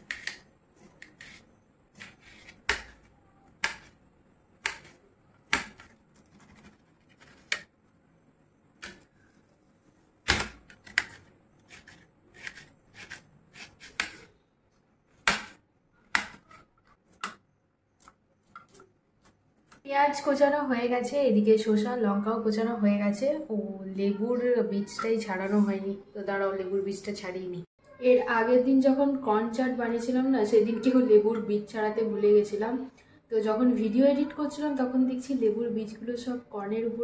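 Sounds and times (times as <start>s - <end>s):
knife slicing on metal plate: 10.3s - 14.3s.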